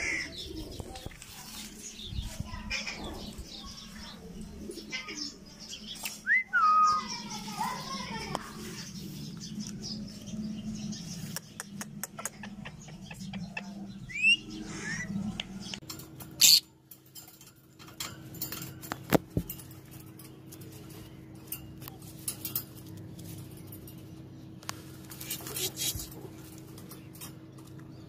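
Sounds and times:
lovebirds chirping: 0:00.0 - 0:17.0
bird clicks: 0:11.3 - 0:12.7.

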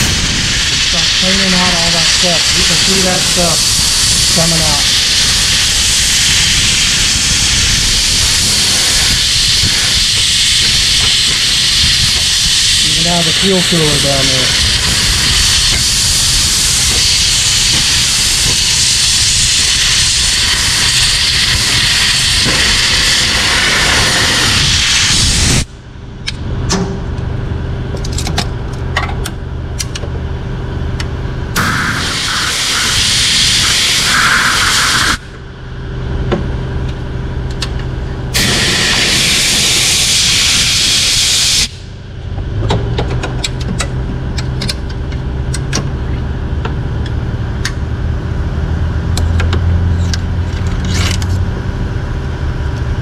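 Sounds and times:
compressed air hissing: 0:00.0 - 0:25.7, 0:31.6 - 0:35.5, 0:38.3 - 0:42.0
steady low hum: 0:00.0 - 0:53.0.

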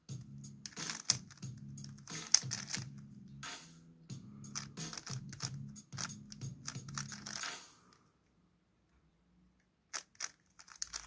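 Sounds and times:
background music: 0:00.0 - 0:08.0
puzzle cube clicking: 0:00.6 - 0:03.0, 0:04.5 - 0:07.6, 0:09.9 - 0:11.0.

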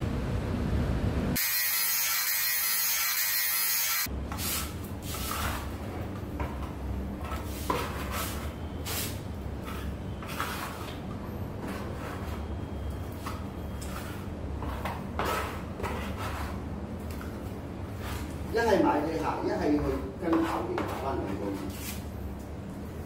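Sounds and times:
putty knife scraping filler: 0:07.2 - 0:12.5, 0:13.2 - 0:17.4, 0:20.3 - 0:22.0.

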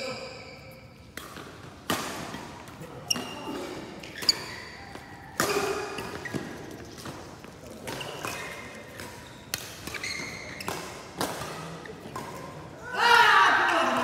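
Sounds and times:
shoe squeaks on court floor: 0:00.0 - 0:01.2, 0:03.0 - 0:05.3, 0:05.9 - 0:07.2, 0:07.8 - 0:11.7
racket hitting shuttlecock: 0:01.0 - 0:12.7.

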